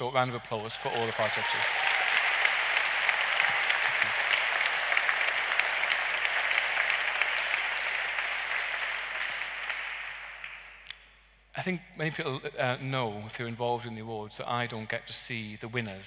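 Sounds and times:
large audience applauding: 0:00.0 - 0:10.8.

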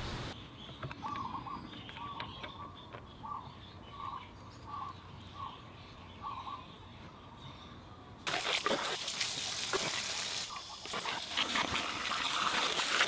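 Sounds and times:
hose water splashing on concrete: 0:08.2 - 0:13.0.

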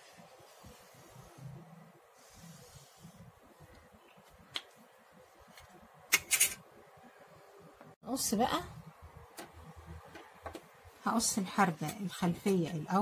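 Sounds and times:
marker drawing on fabric: 0:00.2 - 0:03.4.

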